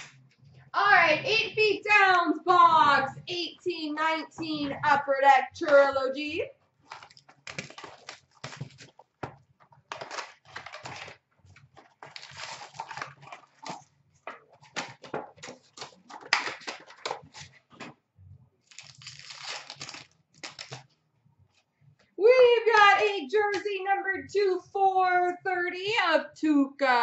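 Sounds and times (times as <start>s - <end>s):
foil packs crinkling and tearing: 6.8s - 17.9s, 18.6s - 20.9s.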